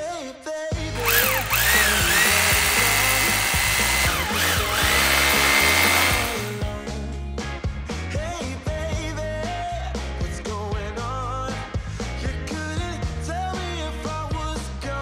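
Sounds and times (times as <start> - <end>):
background music: 0.0 - 15.0
power tool whining: 1.0 - 6.8.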